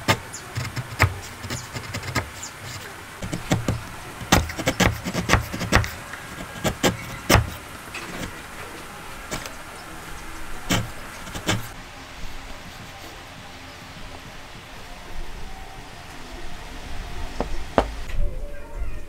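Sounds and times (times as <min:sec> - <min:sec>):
chisel cutting wood: 0:00.0 - 0:11.8.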